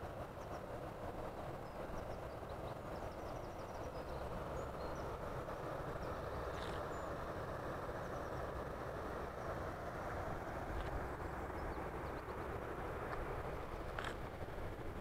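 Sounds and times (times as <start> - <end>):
small birds chirping: 6.0 - 7.1.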